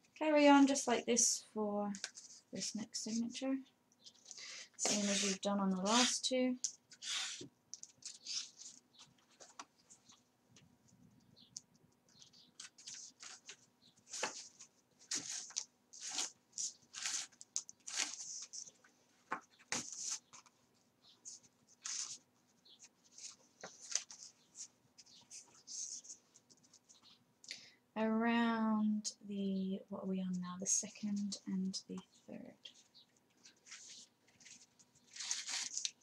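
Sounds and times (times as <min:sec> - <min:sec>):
paper rustling: 0:01.9 - 0:03.3, 0:04.0 - 0:10.2, 0:12.2 - 0:27.1, 0:32.7 - 0:36.0
thread swishing through paper: 0:04.2 - 0:06.2.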